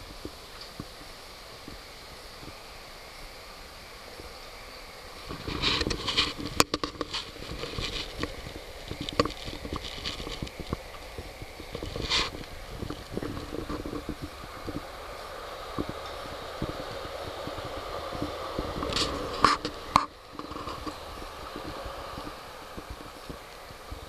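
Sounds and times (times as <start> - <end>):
faint steady hiss: 0.0 - 24.0
microphone handling taps and rustles: 5.2 - 14.9, 15.7 - 24.0.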